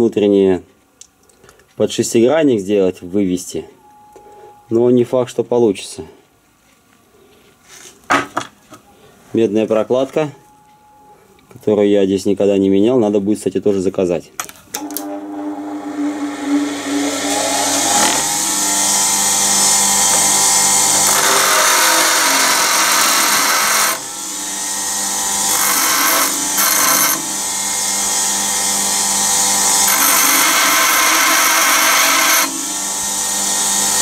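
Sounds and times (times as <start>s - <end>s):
power tool motor whine: 14.8s - 34.0s.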